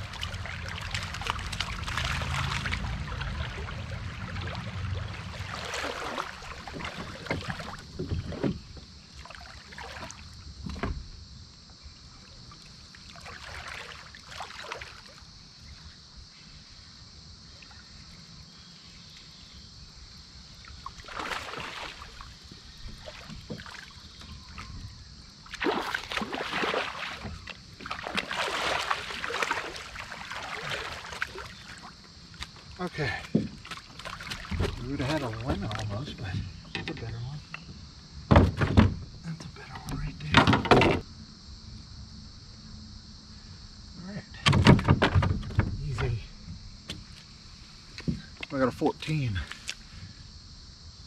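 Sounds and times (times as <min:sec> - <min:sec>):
river water splashing: 0:00.0 - 0:08.0, 0:09.1 - 0:10.4, 0:12.5 - 0:15.3, 0:20.6 - 0:24.6, 0:25.4 - 0:36.3.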